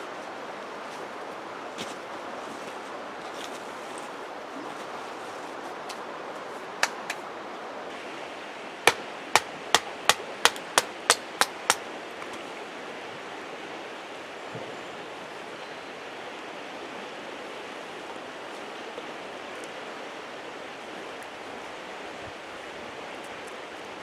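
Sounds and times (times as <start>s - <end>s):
creek rushing: 0.0s - 24.0s.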